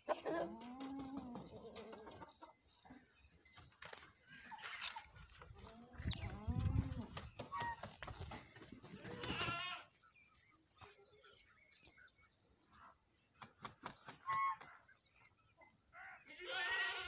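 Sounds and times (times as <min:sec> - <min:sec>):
goats bleating: 0:08.9 - 0:09.9, 0:16.2 - 0:17.0.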